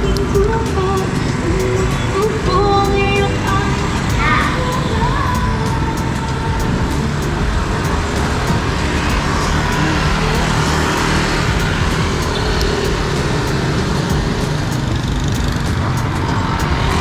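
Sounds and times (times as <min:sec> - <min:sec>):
city street traffic: 0:00.0 - 0:17.0
motorcycle engines running: 0:00.0 - 0:17.0.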